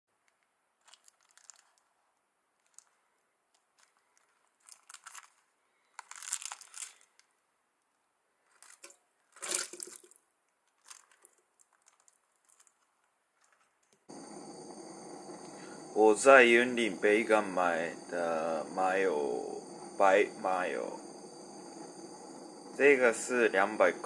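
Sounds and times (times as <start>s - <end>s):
plastic tray and film crinkling: 0.8s - 1.9s, 2.6s - 7.3s, 8.4s - 14.0s.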